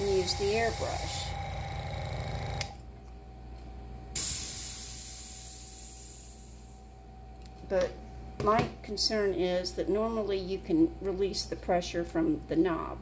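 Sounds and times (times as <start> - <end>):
compressed air hissing: 0.0 - 1.4, 4.2 - 6.6
compressor motor pulsing: 0.0 - 2.8.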